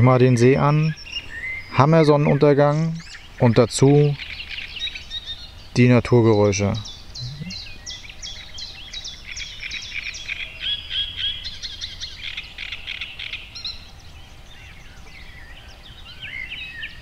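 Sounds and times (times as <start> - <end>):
birds chirping: 0.0 - 17.0
faint low rumble: 7.2 - 7.6.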